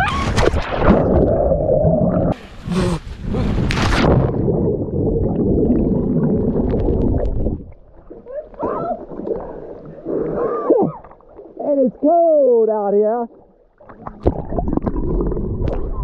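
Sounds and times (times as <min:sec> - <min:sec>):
underwater bubbles gurgling: 0:00.4 - 0:02.5, 0:03.5 - 0:11.7, 0:13.3 - 0:16.0
short voice sounds: 0:02.7 - 0:03.6.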